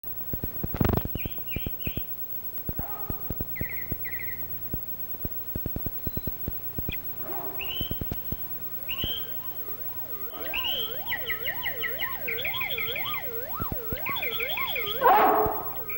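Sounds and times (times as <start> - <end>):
steady low hum: 0.1 - 15.9
bird-like chirps and trills: 1.1 - 2.1, 3.1 - 4.5, 7.3 - 8.2, 8.8 - 15.9
sharp clicks: 2.7 - 9.6.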